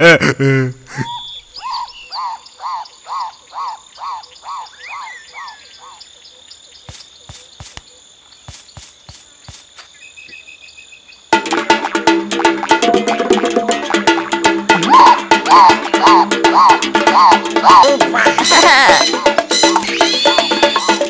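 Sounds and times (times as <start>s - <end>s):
percussive music: 11.4s - 21.0s
cartoon calls rising and falling: 13.0s - 21.0s.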